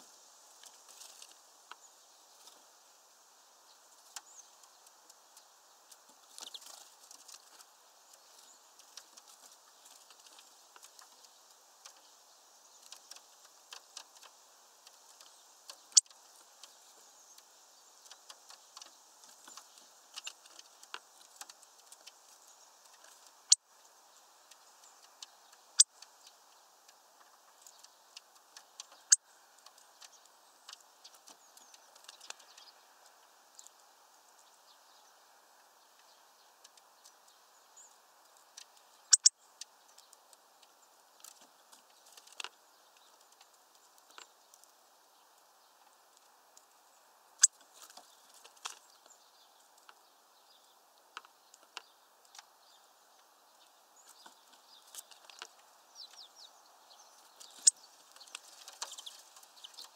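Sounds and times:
bird cracking seeds: 0.5 - 2.7, 3.9 - 12.1, 12.7 - 23.6, 24.4 - 34.5, 38.2 - 44.8, 47.4 - 49.0, 57.1 - 59.9.

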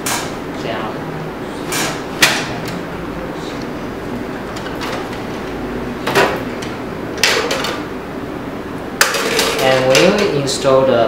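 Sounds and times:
steady background noise: 0.0 - 11.0
printer drawer clatter: 1.7 - 2.8, 4.4 - 7.9, 9.0 - 10.4.

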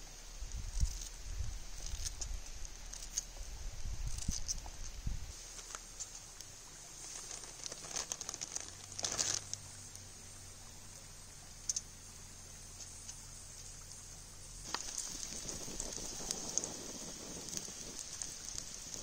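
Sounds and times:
campfire crackling and popping: 0.5 - 10.1, 14.6 - 19.0
short rustle: 0.7 - 9.6.

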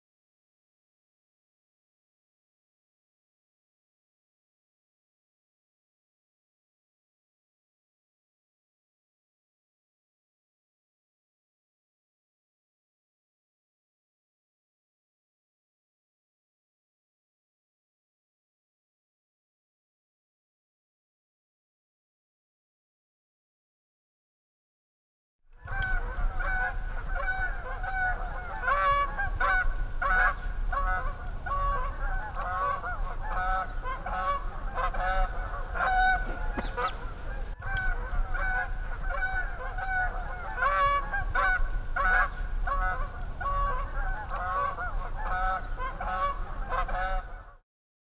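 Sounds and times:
geese honking: 25.6 - 47.6.

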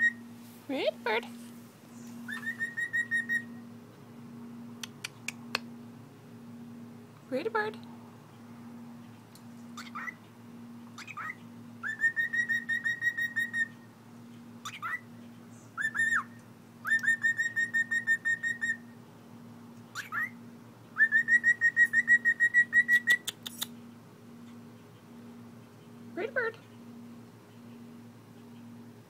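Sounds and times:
cockatiel whistling: 0.0 - 0.2, 2.3 - 3.6, 11.0 - 13.7, 15.8 - 18.8, 20.0 - 20.4, 21.0 - 23.3.

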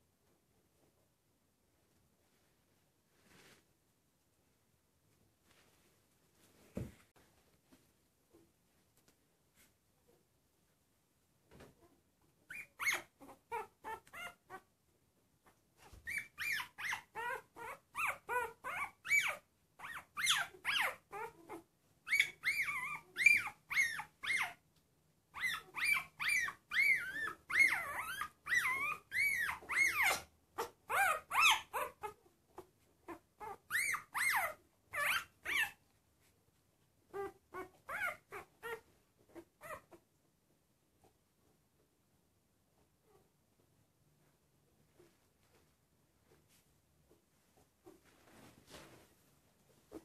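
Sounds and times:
puppy squealing and whimpering: 12.5 - 14.7, 15.8 - 24.6, 25.3 - 35.8, 37.1 - 40.0.

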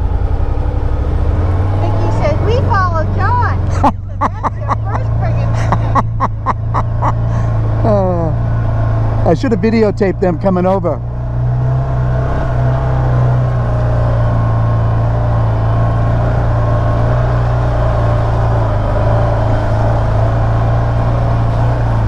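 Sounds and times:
engine running steadily: 0.0 - 22.0.

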